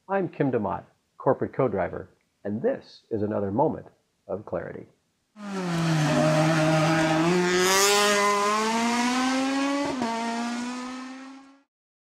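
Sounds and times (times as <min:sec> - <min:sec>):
car engine accelerating: 0:05.4 - 0:11.7.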